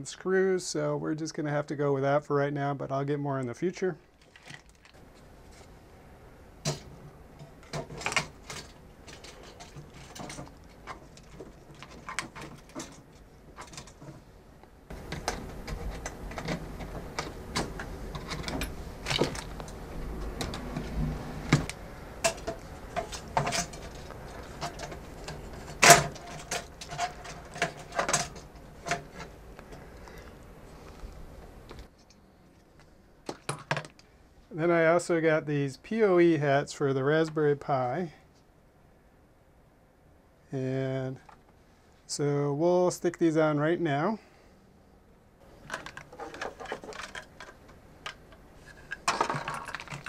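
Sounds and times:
devices clicking and knocking: 6.6s - 14.2s, 14.9s - 29.8s, 45.6s - 50.0s.

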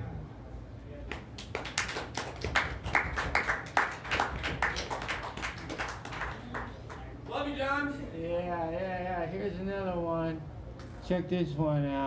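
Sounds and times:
small audience clapping: 1.1s - 7.2s.

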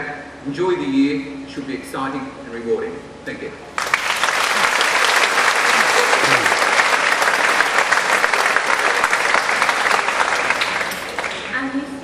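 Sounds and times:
audience applauding: 3.8s - 11.7s.

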